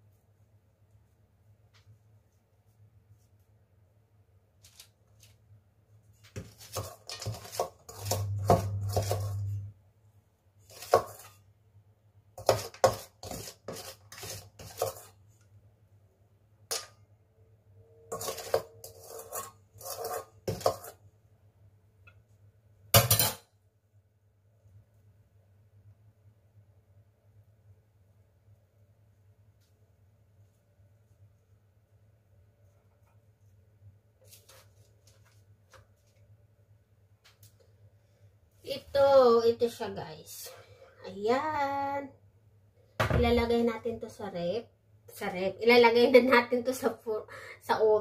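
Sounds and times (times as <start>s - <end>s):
metal spoon scraping pot: 6.6s - 9.7s, 12.4s - 15.1s, 18.1s - 21.0s
low hum: 8.2s - 10.0s.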